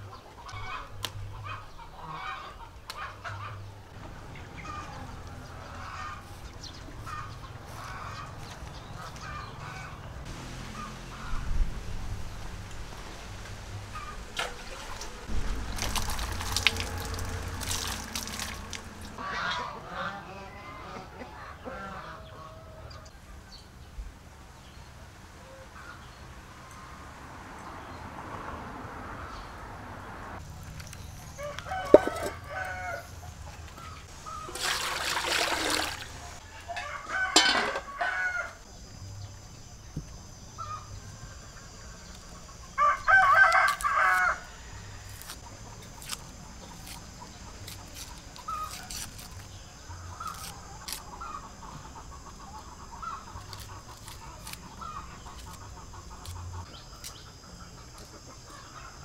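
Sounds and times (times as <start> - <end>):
chickens clucking: 19.1 - 23.1
rooster crowing: 31.3 - 33.2, 36.4 - 38.6, 42.8 - 45.1.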